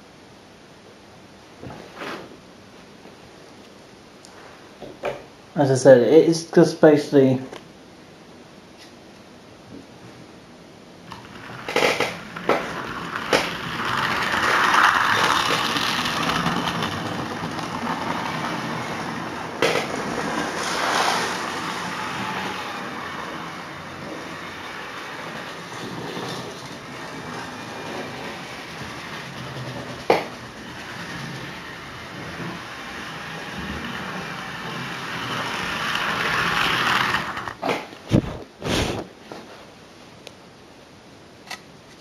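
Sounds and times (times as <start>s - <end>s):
model train rumbling on track: 11.1s - 37.7s.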